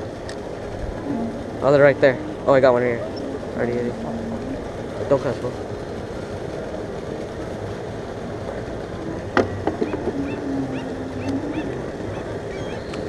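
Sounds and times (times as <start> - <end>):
low held tone: 0.0 - 5.5, 8.4 - 13.0
water noise: 0.0 - 13.0
wind: 0.0 - 13.0.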